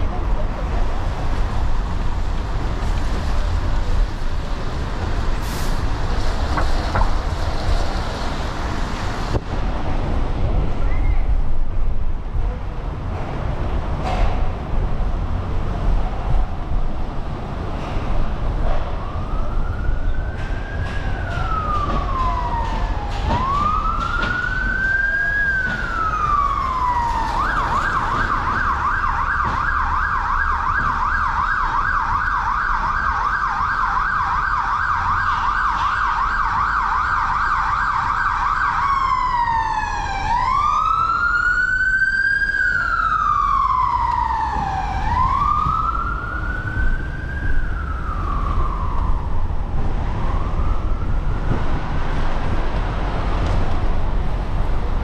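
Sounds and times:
emergency vehicle siren: 0:17.4 - 0:55.0.

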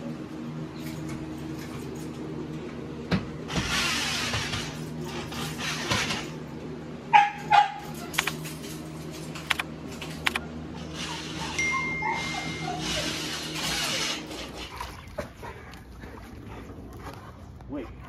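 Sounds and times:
dog barking: 0:07.1 - 0:08.0.

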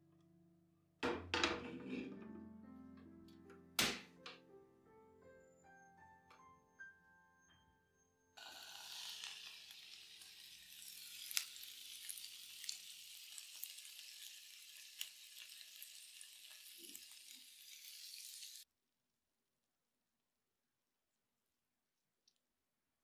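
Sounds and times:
skewers sizzling: 0:08.4 - 0:18.7.

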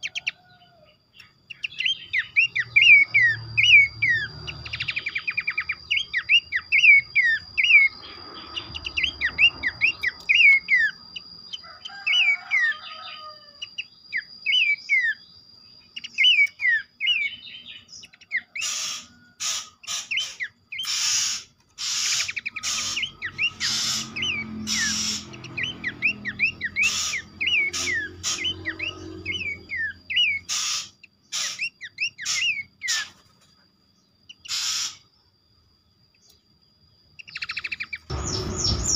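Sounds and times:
bird whistled notes: 0:01.2 - 0:33.1, 0:34.3 - 0:35.1, 0:37.2 - 0:38.9
harsh rasping bird bursts: 0:18.6 - 0:29.6, 0:30.2 - 0:33.2, 0:34.4 - 0:35.1.

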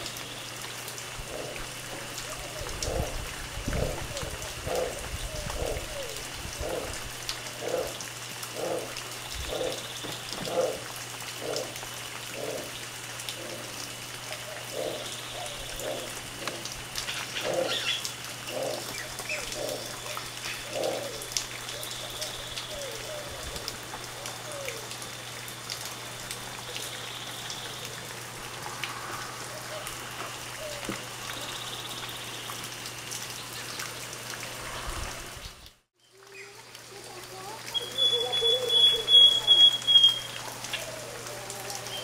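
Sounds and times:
howler monkey low pulsed calls: 0:00.1 - 0:25.2, 0:37.8 - 0:42.0.

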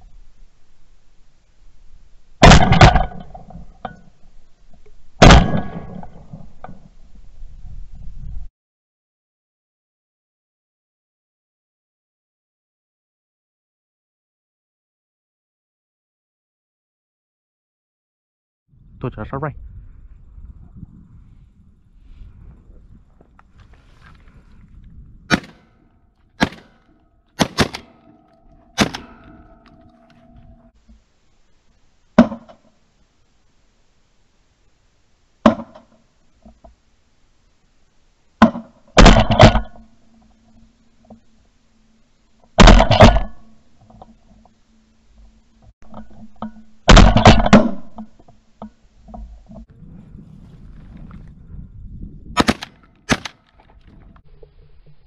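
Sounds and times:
shotgun blasts: 0:02.4 - 0:03.5, 0:05.2 - 0:06.4, 0:25.3 - 0:25.8, 0:26.4 - 0:29.7, 0:38.4 - 0:39.9, 0:42.6 - 0:43.5, 0:46.8 - 0:48.0, 0:52.4 - 0:53.4.

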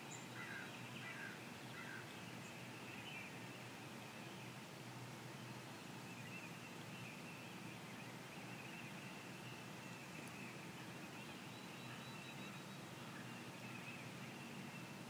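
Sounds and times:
distant birdsong: 0:00.0 - 0:15.0
faint background hiss: 0:00.0 - 0:15.0.

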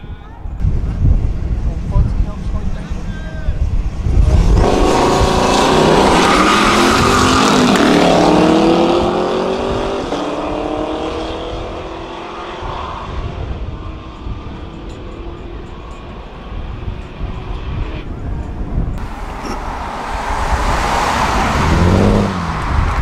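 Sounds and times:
car engine accelerating: 0:03.9 - 0:17.9, 0:19.0 - 0:23.0.

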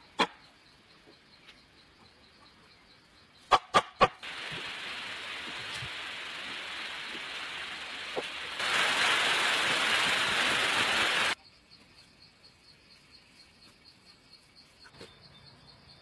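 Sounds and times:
faint insect chirping: 0:00.0 - 0:08.7, 0:09.5 - 0:16.0
steady noisy hiss: 0:03.0 - 0:11.4.

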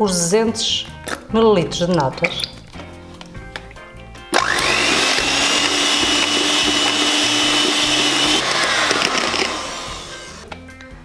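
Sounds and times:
electric hand mixer whining: 0:04.3 - 0:10.4.

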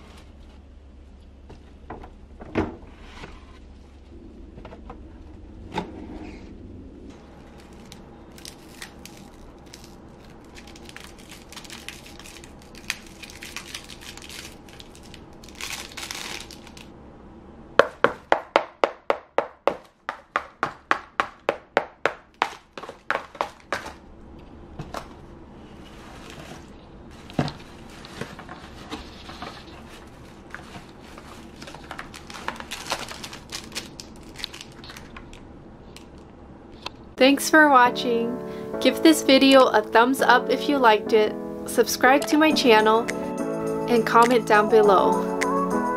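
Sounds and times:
paper shreds crinkling: 0:07.4 - 0:16.9, 0:25.8 - 0:35.2.

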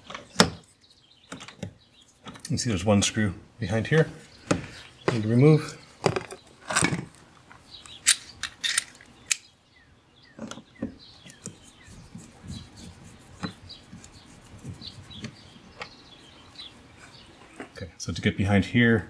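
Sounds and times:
sharp clicks: 0:07.8 - 0:09.5.

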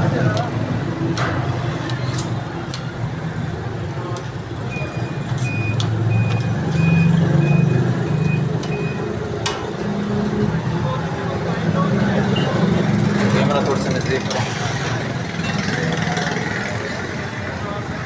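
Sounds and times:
vehicle engine rumbling: 0:00.0 - 0:18.0
reversing alarm beeps: 0:04.7 - 0:09.1.

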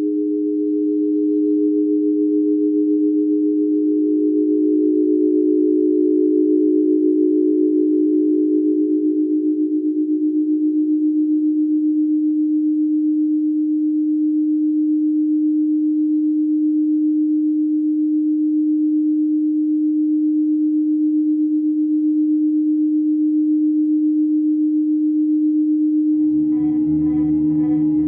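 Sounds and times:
pulsing electronic drone tone: 0:00.0 - 0:10.8, 0:25.8 - 0:28.0
higher electronic tone: 0:26.0 - 0:28.0.

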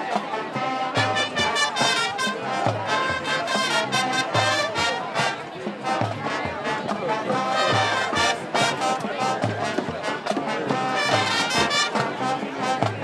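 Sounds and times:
marching band playing: 0:00.0 - 0:13.0
trumpets and trombones melody: 0:00.0 - 0:13.0.

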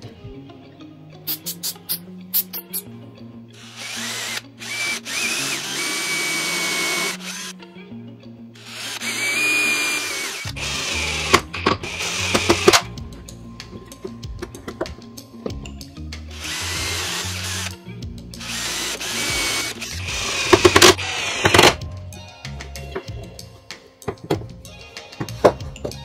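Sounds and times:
cordless drill whining: 0:03.6 - 0:07.6, 0:08.6 - 0:12.9, 0:16.3 - 0:17.8, 0:18.4 - 0:21.8
impact driver driving screw: 0:08.6 - 0:12.9, 0:18.4 - 0:21.8.

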